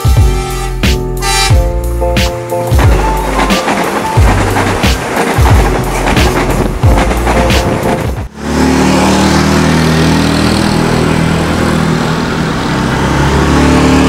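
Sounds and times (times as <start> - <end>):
intro music: 0.0 - 8.4
vehicle engines humming: 6.6 - 14.0
motorcycle passing: 8.4 - 14.0.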